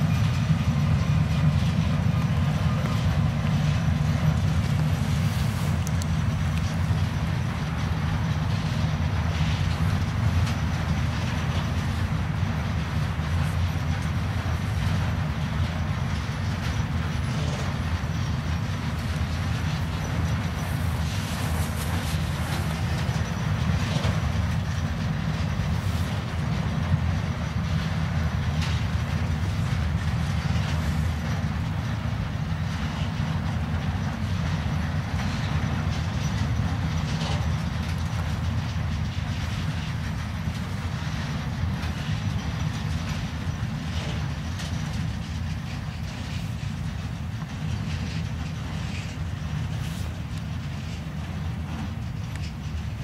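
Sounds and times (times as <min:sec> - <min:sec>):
freight train rumbling past: 0:00.0 - 0:53.0
train wheel clicks: 0:00.0 - 0:53.0.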